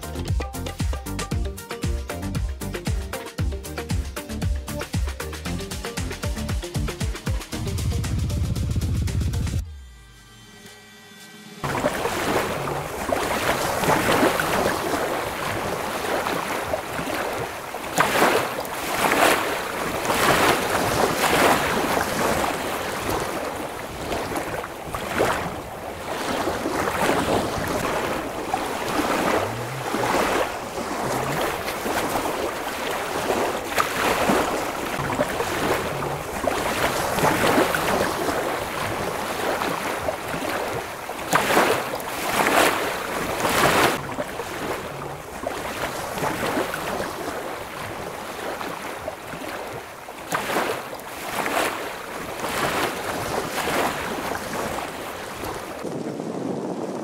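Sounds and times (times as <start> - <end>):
waves washing onto beach: 11.6 - 57.0.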